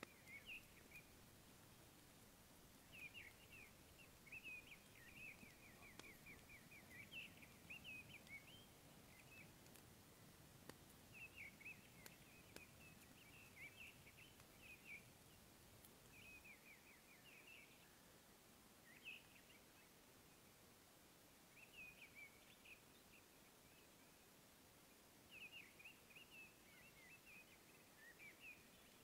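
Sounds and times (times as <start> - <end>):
bird chirping: 0.0 - 1.3, 2.8 - 9.6, 11.1 - 15.4, 16.1 - 18.0, 18.8 - 19.9, 25.3 - 29.0
faint clicks: 4.3 - 8.5, 9.1 - 9.9, 10.6 - 14.6.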